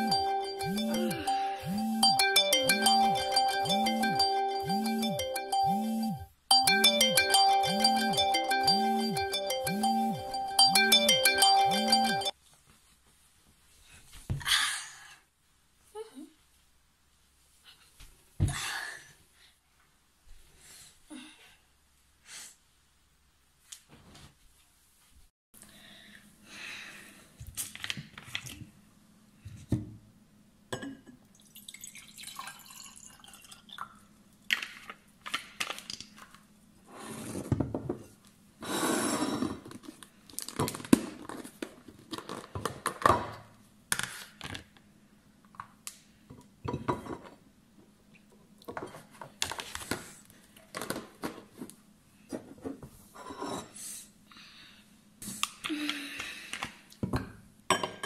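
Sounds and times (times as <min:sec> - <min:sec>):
water poured into a glass: 0:31.3 - 0:34.0.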